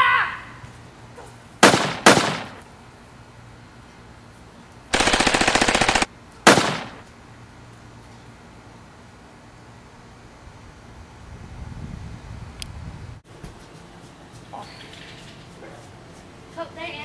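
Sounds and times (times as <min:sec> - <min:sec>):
machine-gun burst: 0:01.6 - 0:02.6, 0:04.9 - 0:07.0
single gunshots: 0:01.6 - 0:02.6, 0:05.0 - 0:07.0.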